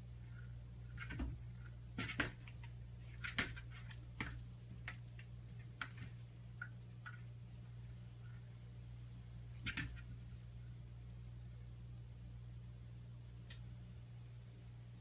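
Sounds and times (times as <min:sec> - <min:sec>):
cat collar bell jingling: 0:02.0 - 0:06.4.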